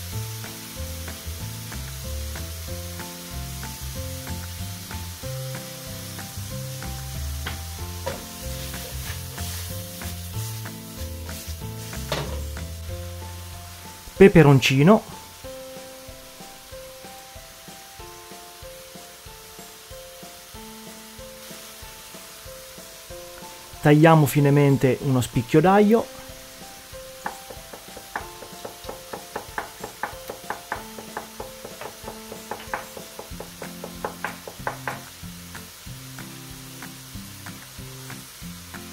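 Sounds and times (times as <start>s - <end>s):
background music: 0.0s - 38.9s
food sizzling in frying pan: 0.0s - 38.9s
knife tapping on cutting board: 7.5s - 8.2s, 27.2s - 35.1s.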